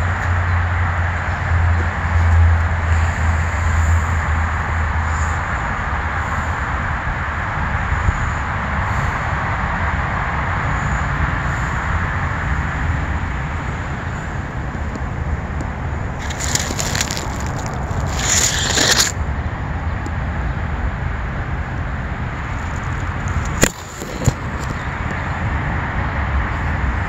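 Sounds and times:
outdoor noise with low rumble: 0.0 - 27.0
crunching rustling noise: 16.1 - 19.2, 22.4 - 25.2.

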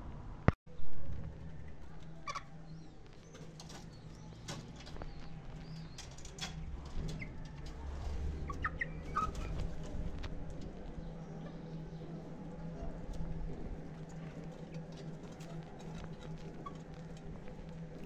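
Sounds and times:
low steady hum: 0.0 - 18.0
chickens clucking: 2.0 - 17.9
scratching and clicks: 12.1 - 18.0.

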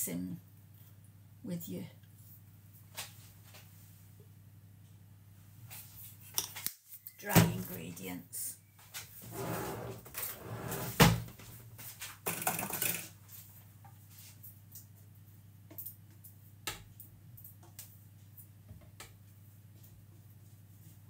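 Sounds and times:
kitchen rustling and clattering: 8.9 - 15.0.

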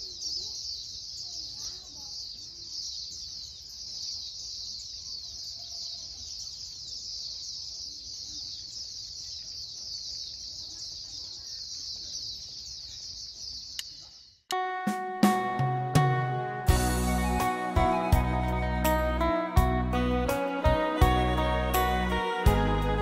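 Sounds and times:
small birds chirping: 0.0 - 14.5.

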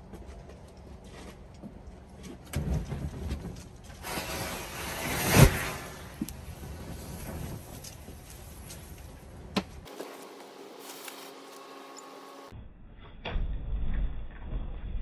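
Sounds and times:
low whoosh of fire catching: 2.6 - 9.9
mixture flaring with rushing hiss: 4.0 - 8.7.

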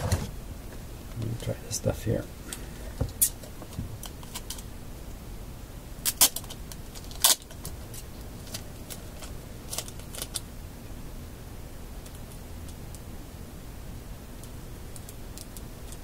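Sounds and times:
tape clicks and crackles: 2.5 - 4.7, 6.0 - 10.5, 14.4 - 16.0.

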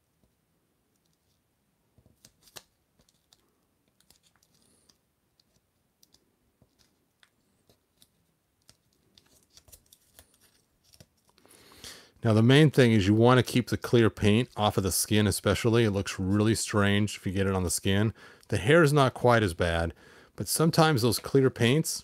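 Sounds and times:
tape clicks and crackles: 2.0 - 11.5.

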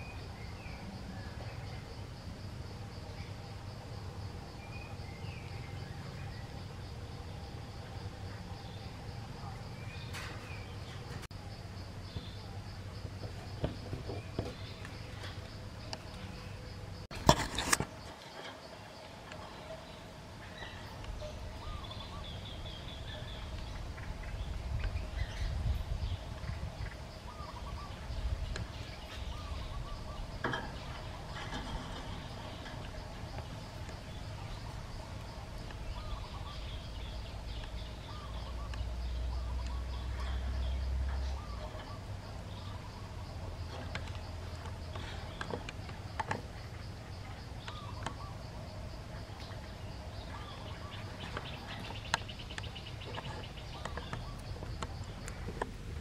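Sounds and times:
high insect drone: 0.0 - 56.0
faint bird calls: 17.8 - 56.0.

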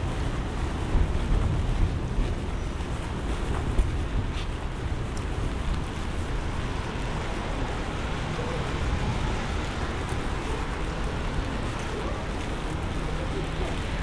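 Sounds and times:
heavy rain falling: 3.2 - 14.0.

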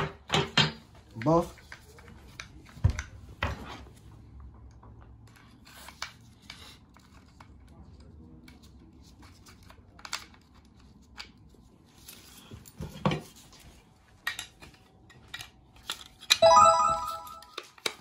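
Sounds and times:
bright chime: 16.4 - 17.6.

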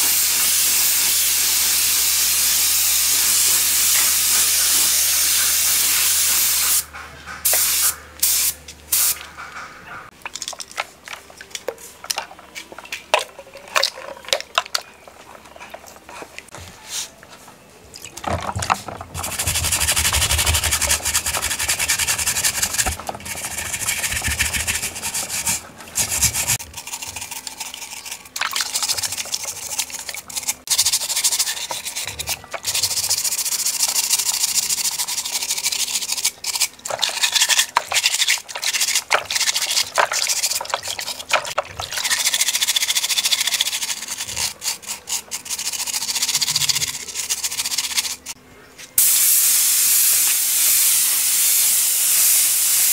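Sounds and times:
scouring pad scrubbing metal in water: 19.2 - 33.4.

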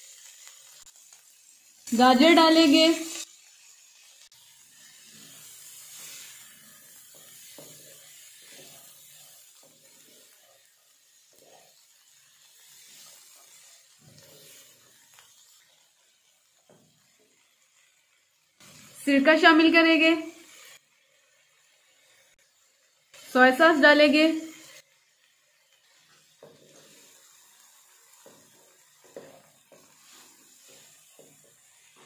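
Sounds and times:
wooden spatula scraping wok: 4.0 - 17.9, 25.6 - 32.0.

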